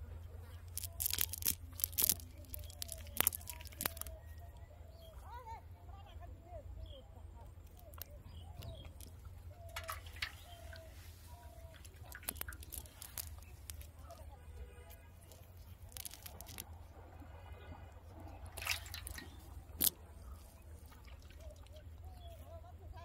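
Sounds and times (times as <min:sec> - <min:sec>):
wet net rustling: 0:00.5 - 0:04.4, 0:07.7 - 0:16.8, 0:18.1 - 0:22.5
small clicks: 0:00.6 - 0:04.2, 0:07.6 - 0:10.9, 0:11.7 - 0:16.7, 0:18.5 - 0:21.8.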